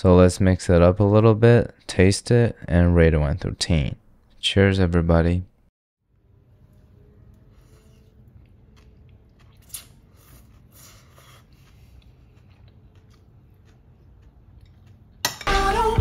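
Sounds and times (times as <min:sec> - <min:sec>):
person chewing and crunching: 0:07.6 - 0:15.3.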